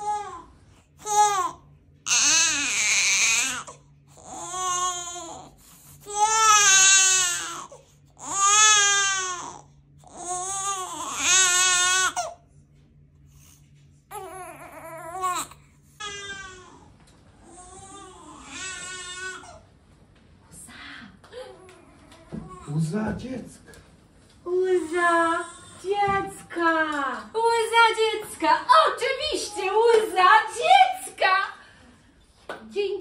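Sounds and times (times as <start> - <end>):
infant crying: 0.0 - 12.4, 14.1 - 19.6.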